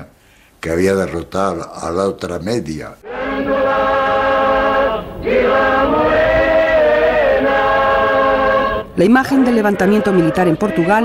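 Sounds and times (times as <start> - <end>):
choir singing: 3.0 - 11.0.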